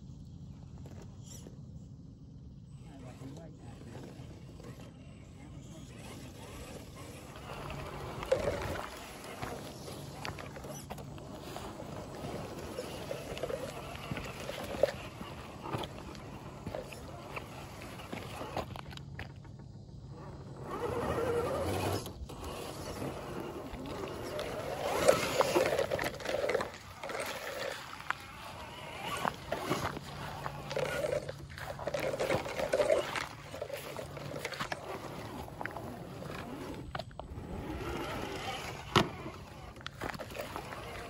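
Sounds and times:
electric drivetrain noise: 2.2 - 41.0
tyres scrabbling: 5.7 - 41.0
grass brushing: 23.3 - 36.7.

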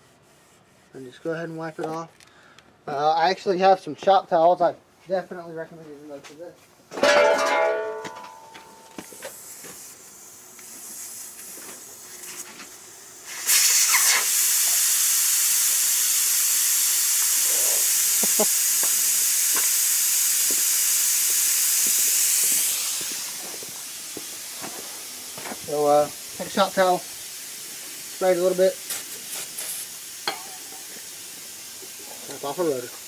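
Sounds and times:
aerosol can spraying: 8.9 - 33.0.

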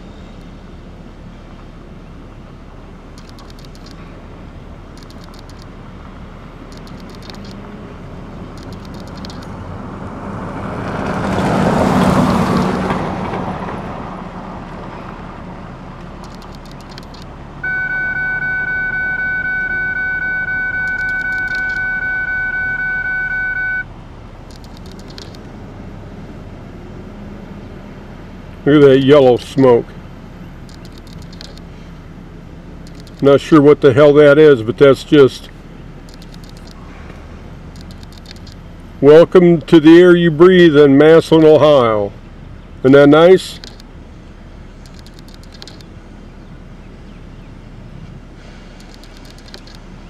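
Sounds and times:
vehicle passing by: 6.0 - 30.4
loud steady tone: 16.2 - 23.9.

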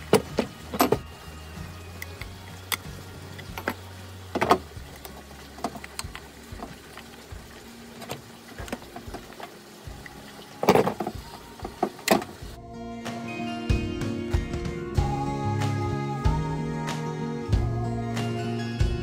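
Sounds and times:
plastic and metal handling noises: 0.0 - 1.1, 10.6 - 12.4.

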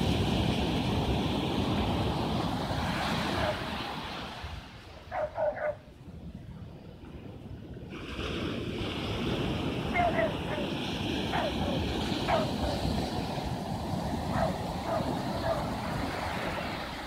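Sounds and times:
surf washing up beach: 0.0 - 17.0
wind on microphone: 0.0 - 17.0.

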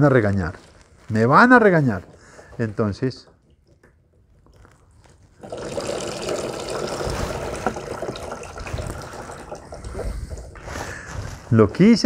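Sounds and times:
water pouring and splashing: 4.6 - 11.4
water draining: 5.4 - 10.8.

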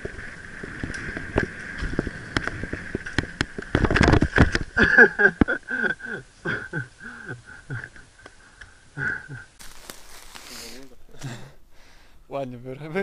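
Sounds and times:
mountain bike rattling on dirt trail: 0.0 - 6.2
person groaning and gasping: 10.5 - 11.6.

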